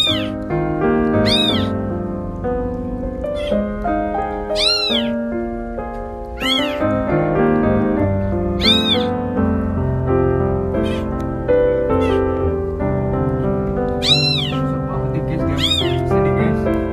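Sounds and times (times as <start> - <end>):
kittens mewing: 0.0 - 0.4, 1.2 - 1.8, 3.3 - 3.7, 4.4 - 5.2, 6.3 - 7.0, 8.6 - 9.2, 10.8 - 11.2, 11.8 - 12.5, 14.0 - 14.7, 15.5 - 16.1
background music: 0.0 - 16.9.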